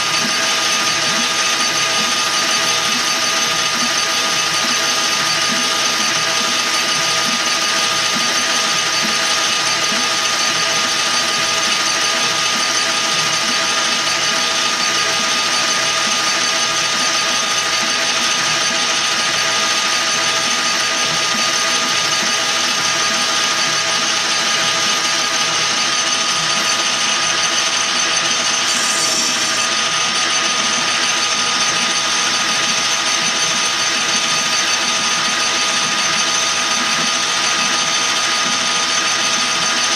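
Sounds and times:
lathe gear whine: 0.0 - 39.9
cutting tool hiss: 28.4 - 30.0.

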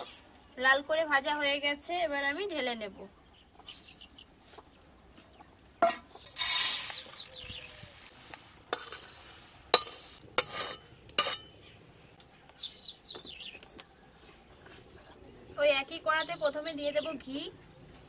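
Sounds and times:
metal spatula scraping a wok: 5.8 - 11.6
dry lentils pouring: 6.2 - 10.2.

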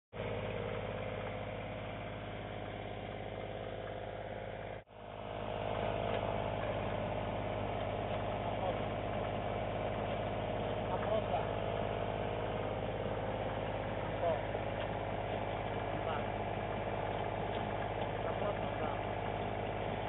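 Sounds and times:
portable generator running: 0.2 - 20.0.

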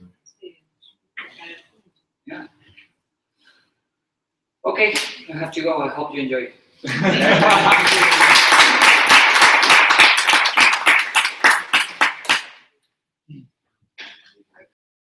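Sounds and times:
audience applauding: 6.9 - 12.6.

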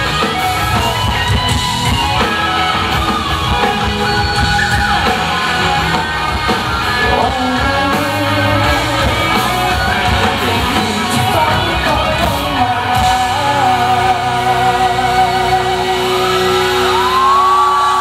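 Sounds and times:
audience screaming and whooping: 0.0 - 18.0
rock band playing: 0.0 - 18.0
man singing: 6.8 - 16.5.

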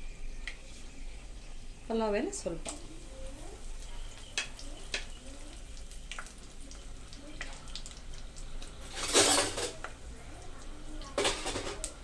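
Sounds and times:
spices sizzling in hot oil: 0.0 - 12.0
small pops and crackles: 3.7 - 9.0, 9.7 - 12.0.

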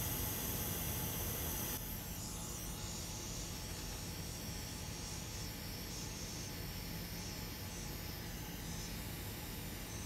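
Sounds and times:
hot air blower hissing: 0.0 - 1.8.

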